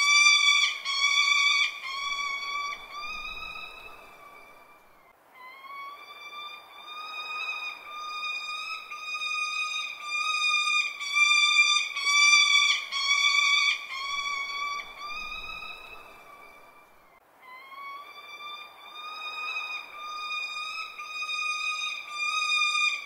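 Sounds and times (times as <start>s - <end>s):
falcon calling: 0.0s - 16.8s, 17.5s - 23.0s.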